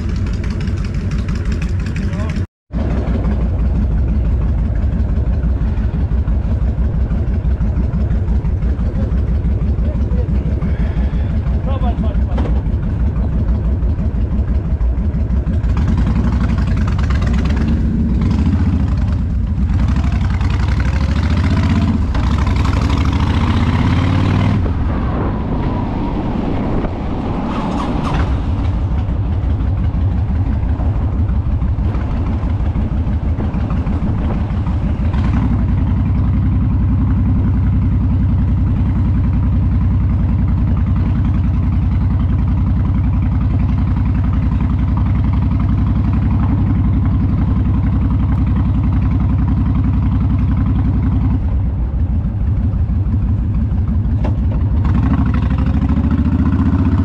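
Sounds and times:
motorcycle engine running: 0.0 - 25.3, 26.9 - 57.0
rushing noise: 19.2 - 38.5.

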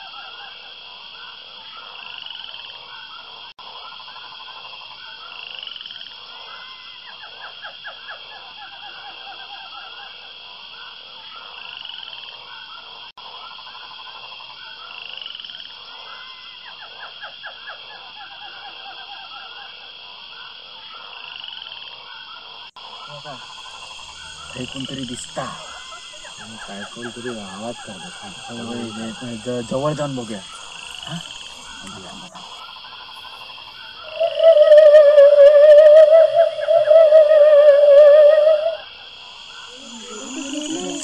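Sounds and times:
frogs croaking: 0.0 - 41.0
steady high trill: 39.6 - 41.0.

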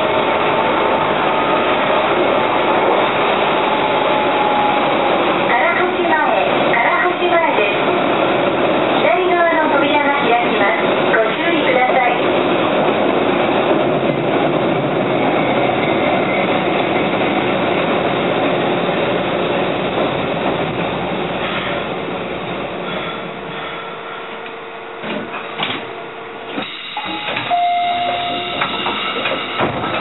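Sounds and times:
electric train running: 0.0 - 30.0
train clunks: 19.8 - 30.0
train brake whine: 22.8 - 30.0
short high tone: 27.0 - 28.6.

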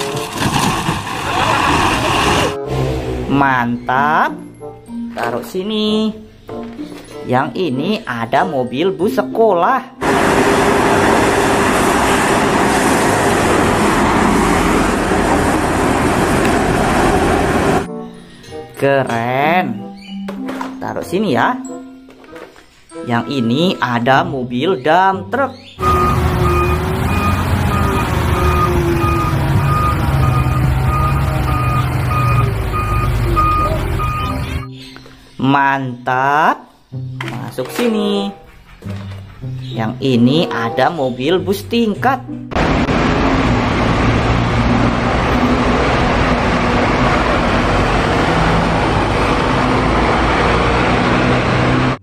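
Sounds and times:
minibus driving past: 10.0 - 17.9, 25.8 - 34.7, 42.6 - 52.0
truck engine running: 10.0 - 17.9, 25.8 - 34.7, 42.6 - 52.0
truck reversing alarm beeping: 25.8 - 34.7
car passing close by: 42.6 - 52.0.

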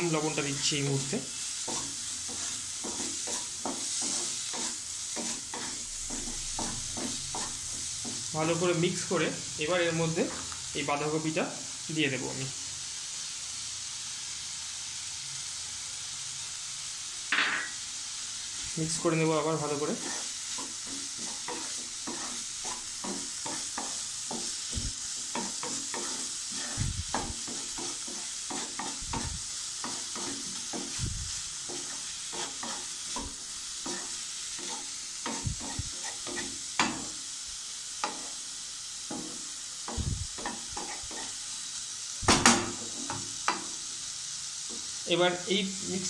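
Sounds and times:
vegetables sizzling in oil: 0.0 - 46.0
spatula clattering against pan: 1.7 - 8.3, 20.0 - 31.0.

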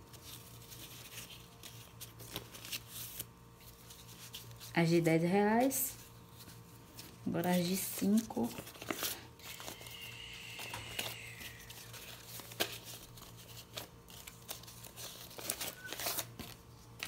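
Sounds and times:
paper banknotes rustling: 0.1 - 4.7, 11.1 - 17.0.

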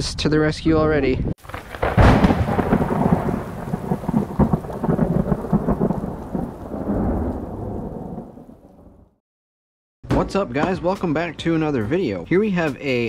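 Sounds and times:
crackling thunder rumble: 1.4 - 9.2
loud thunder crack: 1.4 - 9.2.

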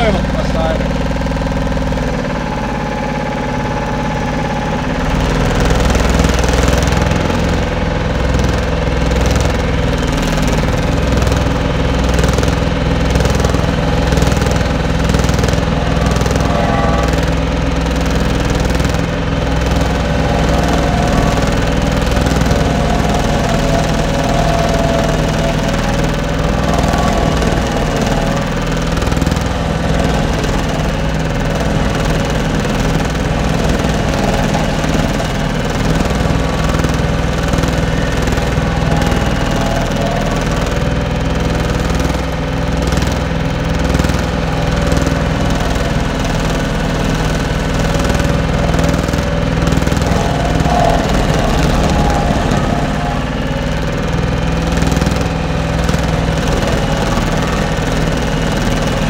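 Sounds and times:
skid steer engine under load: 0.0 - 59.0
stump grinder grinding wood: 0.0 - 59.0.

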